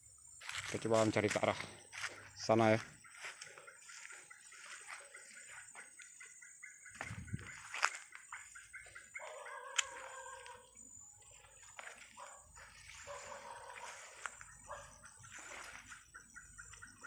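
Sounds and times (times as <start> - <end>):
drawn-out animal calls: 7.5 - 17.0
sharp clicks: 9.7 - 10.0.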